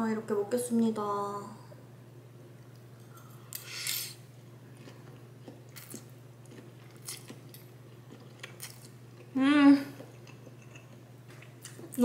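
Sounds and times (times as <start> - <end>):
quiet chewing: 4.7 - 12.0.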